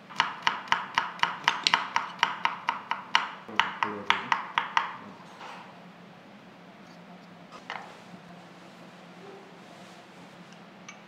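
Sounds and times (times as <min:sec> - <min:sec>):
knife chopping on wooden board: 0:00.1 - 0:05.0.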